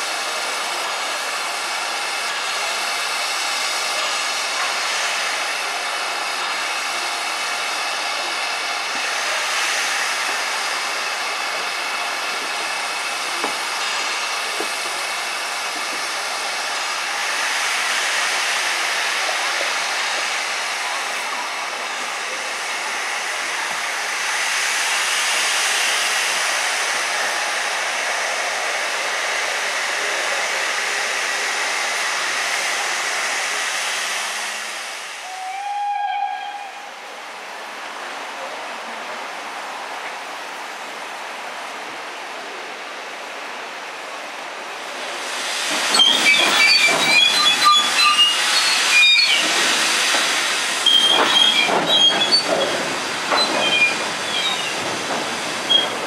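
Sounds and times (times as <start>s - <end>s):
steam locomotive hissing: 0.0s - 56.0s
steam whistle blast: 35.2s - 36.9s.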